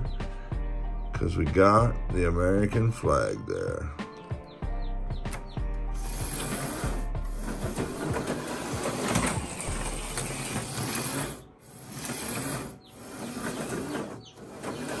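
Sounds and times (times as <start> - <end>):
slot car motor whirring: 5.9 - 15.0.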